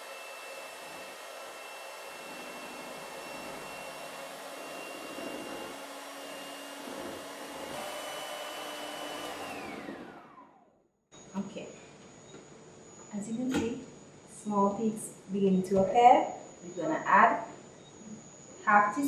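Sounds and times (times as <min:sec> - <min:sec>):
electric mixer motor whining: 0:00.0 - 0:10.8.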